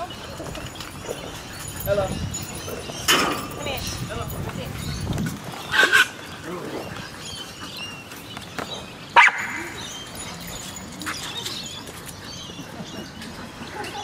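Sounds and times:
dog barking: 9.2s - 9.6s.

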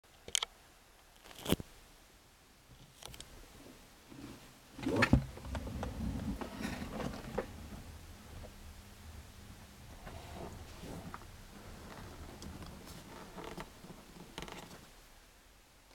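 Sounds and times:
low rubbing: 4.1s - 14.9s.

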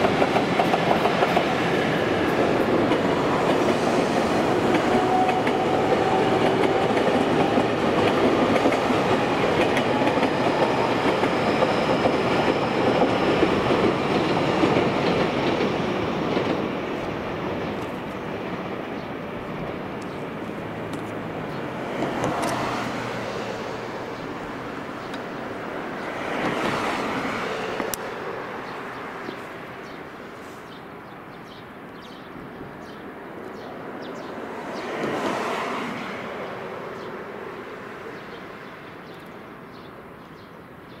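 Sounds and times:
traffic hum: 0.0s - 40.9s
vehicles passing by: 17.5s - 39.8s.

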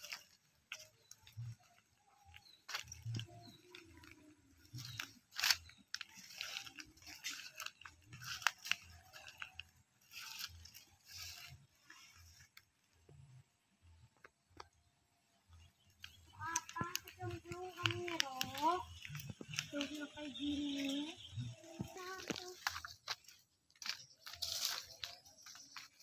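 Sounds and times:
footsteps crunching through dry grass: 0.0s - 13.1s, 15.8s - 26.0s
plants brushing: 0.0s - 13.1s, 15.9s - 26.0s
sharp clicks: 15.9s - 20.3s.

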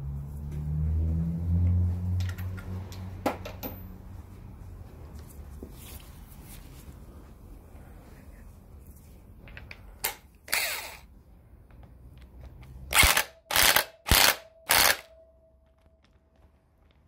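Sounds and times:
impact wrench hammering: 12.9s - 15.2s.

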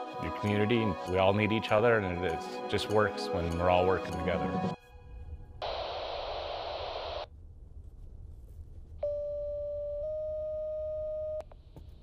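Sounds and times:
radio static: 5.6s - 7.3s.

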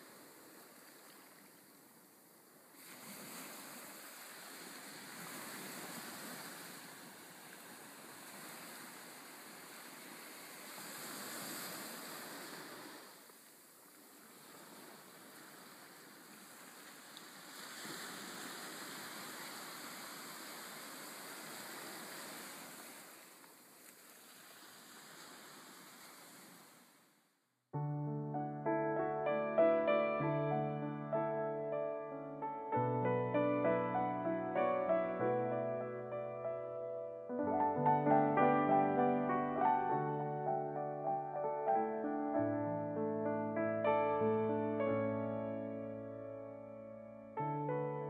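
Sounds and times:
faint sea surf: 0.0s - 27.3s, 28.2s - 48.0s.

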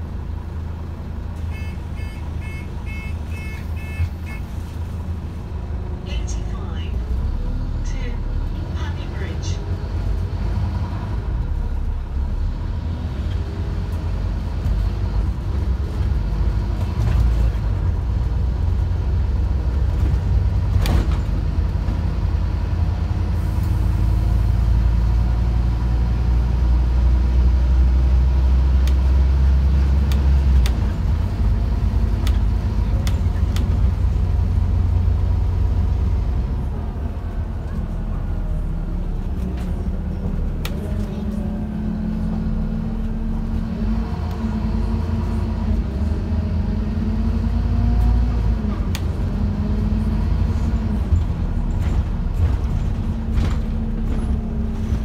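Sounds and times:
bus diesel engine rumble: 0.0s - 55.0s
road noise: 0.0s - 55.0s
bus body rattling: 12.8s - 46.3s, 47.8s - 55.0s.

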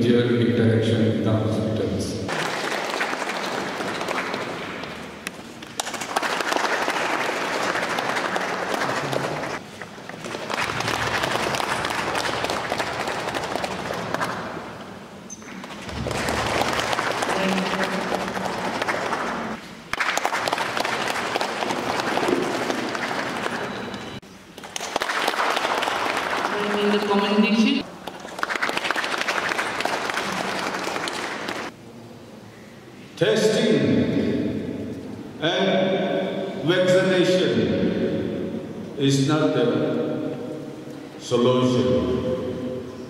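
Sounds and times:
audience applauding: 2.3s - 14.8s, 15.6s - 31.8s.

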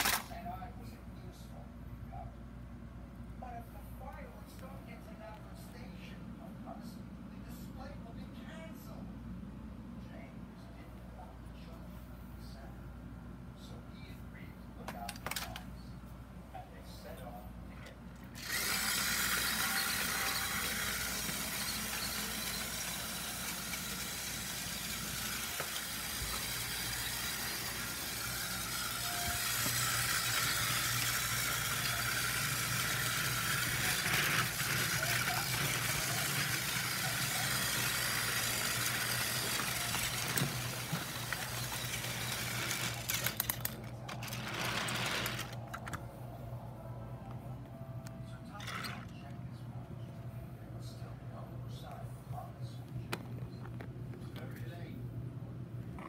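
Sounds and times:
toy train motor whirring: 0.0s - 0.4s, 18.4s - 45.6s.

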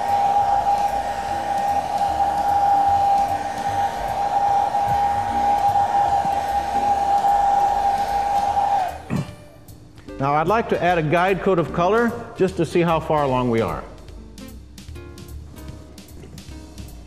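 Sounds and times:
hot-air blower whining: 0.0s - 9.6s.

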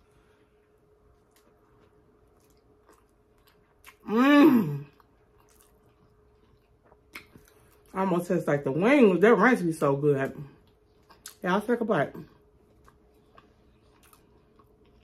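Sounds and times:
faint chewing: 0.9s - 4.1s, 4.8s - 8.0s, 10.5s - 11.4s, 12.3s - 15.0s
person humming with enjoyment: 4.0s - 4.9s.

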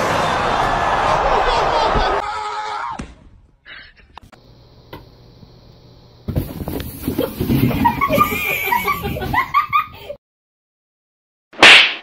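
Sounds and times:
person laughing: 7.2s - 10.2s.

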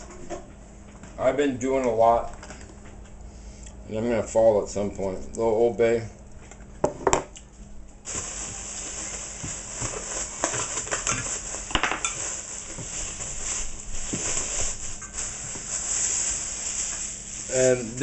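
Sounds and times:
plastic bag crinkling: 8.1s - 18.0s.

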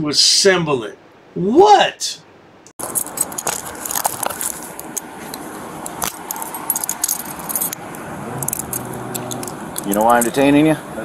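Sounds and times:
metallic jingling and clicking gear: 2.8s - 5.0s, 5.9s - 10.4s.

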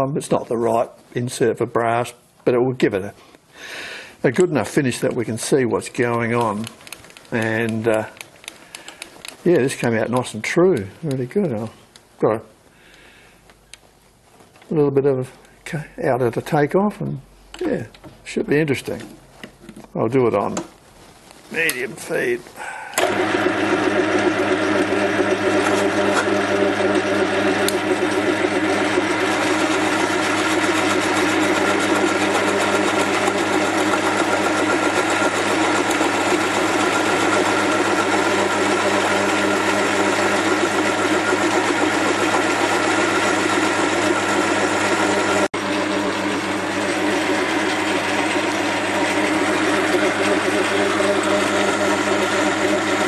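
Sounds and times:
metal lathe whining: 23.0s - 53.0s.

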